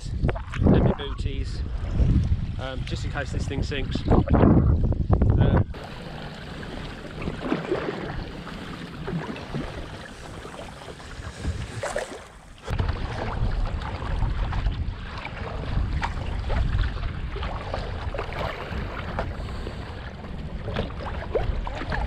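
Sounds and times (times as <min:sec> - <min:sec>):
wind buffeting microphone: 0:00.0 - 0:22.0
waves slapping kayak hull: 0:00.2 - 0:22.0
paddle splashes: 0:05.7 - 0:22.0.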